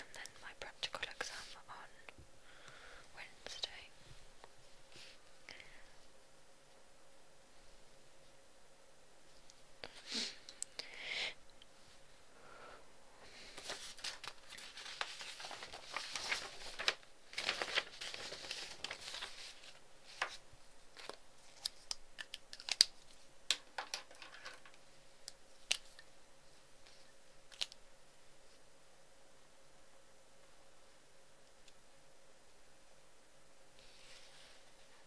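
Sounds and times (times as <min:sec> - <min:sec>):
paper rustling and crinkling: 0:13.5 - 0:24.8.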